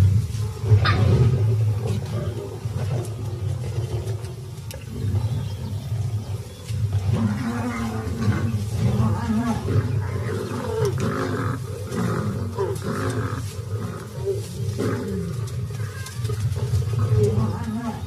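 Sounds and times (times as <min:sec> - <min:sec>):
lioness snarling and growling: 0:00.0 - 0:18.0.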